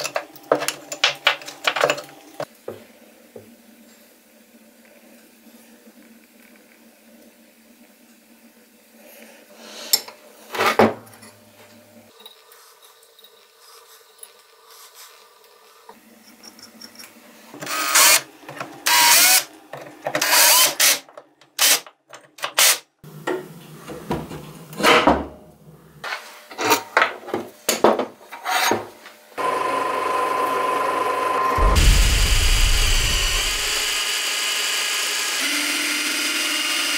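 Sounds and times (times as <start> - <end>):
power tool: 17.6 - 19.5, 20.2 - 21.0, 21.6 - 22.8, 29.4 - 36.9
machine with held tone: 29.4 - 35.4.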